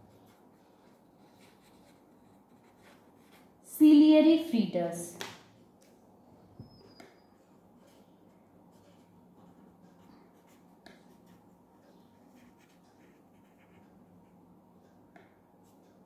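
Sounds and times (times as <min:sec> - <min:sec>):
pen scratching on paper: 0:00.1 - 0:03.5, 0:10.4 - 0:14.4.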